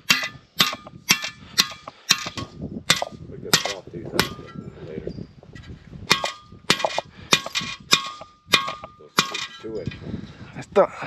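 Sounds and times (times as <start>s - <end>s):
hammer clanging on metal: 0.0s - 4.6s, 6.1s - 10.0s.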